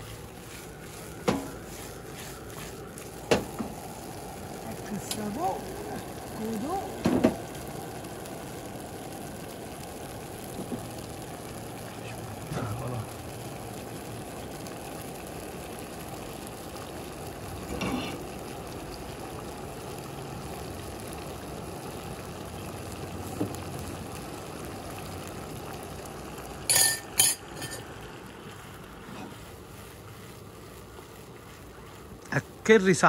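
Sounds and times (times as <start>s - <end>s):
sauce bubbling in a frying pan: 0.0s - 33.0s
metal ladle clinking on pan: 26.7s - 27.8s.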